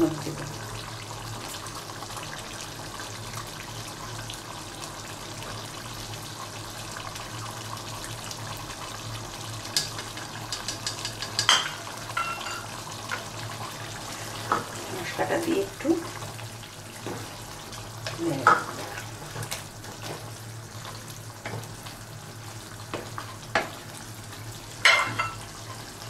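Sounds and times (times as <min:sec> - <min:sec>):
curry simmering hiss: 0:00.0 - 0:26.0.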